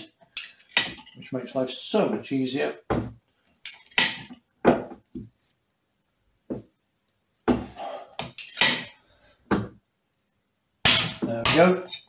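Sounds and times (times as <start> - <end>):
metallic clinks and knocks: 0.3 - 1.2, 10.9 - 12.0.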